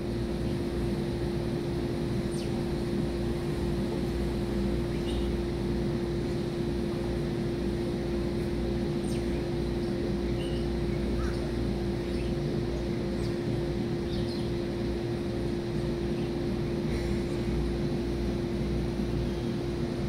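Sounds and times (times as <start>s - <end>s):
steady mechanical drone: 0.0s - 20.0s
faint bird calls: 4.9s - 5.4s, 9.0s - 13.4s, 14.0s - 14.6s.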